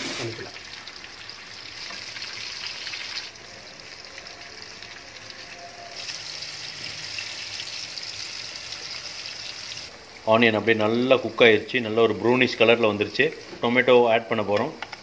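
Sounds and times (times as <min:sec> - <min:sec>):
fish sizzling in a frying pan: 0:00.0 - 0:09.9.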